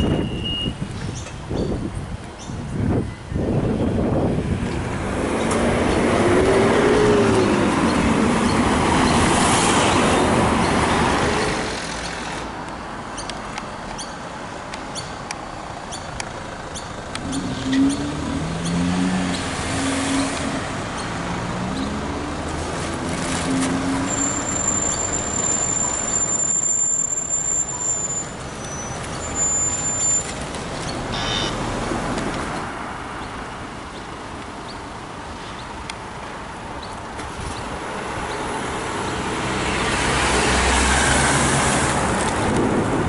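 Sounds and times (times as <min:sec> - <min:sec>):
road traffic: 0:00.0 - 0:43.0
engines pulling away: 0:04.0 - 0:12.7, 0:15.4 - 0:34.2, 0:37.1 - 0:43.0.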